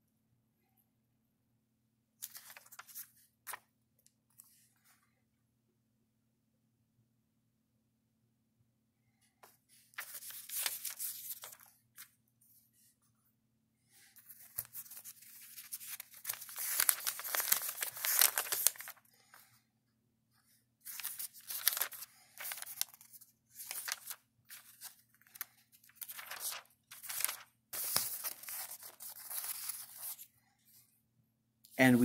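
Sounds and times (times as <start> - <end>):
paper pages turning: 2.2 - 3.6, 9.8 - 12.2, 14.2 - 19.5, 20.8 - 30.3.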